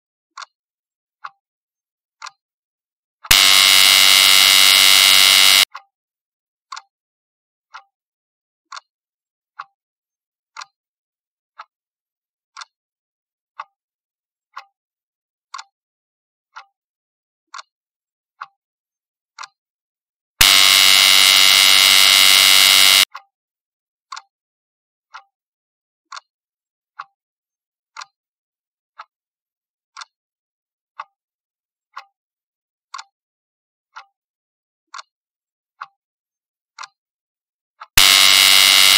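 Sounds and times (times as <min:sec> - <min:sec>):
clock ticking: 0:03.3 - 0:05.7, 0:20.4 - 0:23.1
loud buzzer: 0:03.3 - 0:05.7, 0:20.4 - 0:23.1, 0:38.0 - 0:38.9.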